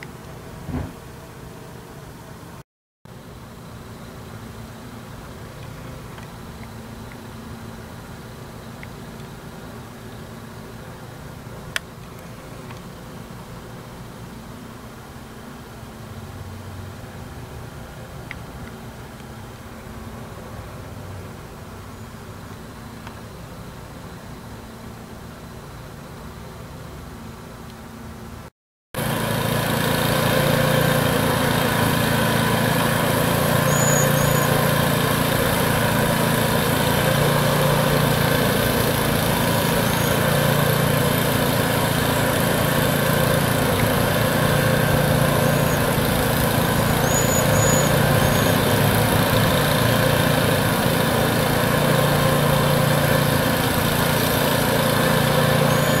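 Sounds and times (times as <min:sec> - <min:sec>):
motor running: 0:29.0 - 0:56.0
high thin bird calls: 0:33.6 - 0:34.6, 0:46.9 - 0:48.6.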